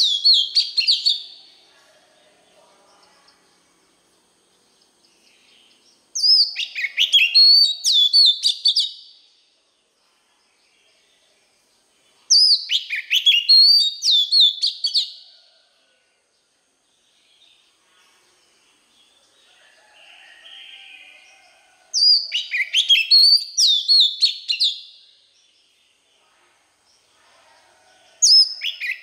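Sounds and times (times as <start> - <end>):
bird singing whistled notes: 0.0 - 1.4, 5.2 - 9.2, 12.2 - 15.2, 22.0 - 25.2, 28.3 - 29.0.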